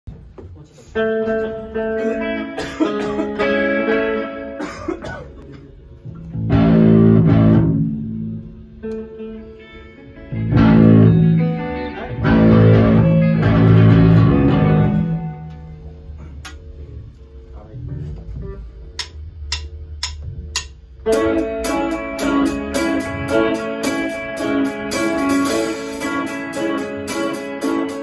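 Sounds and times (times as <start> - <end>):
rock band playing: 1.0 - 4.7, 6.2 - 15.9, 21.0 - 28.0.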